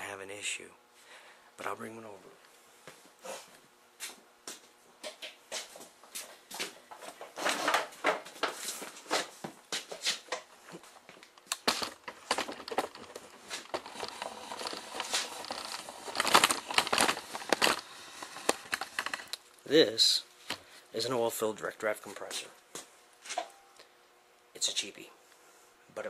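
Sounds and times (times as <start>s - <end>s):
air compressor clattering and knocking: 11.2s - 19.3s.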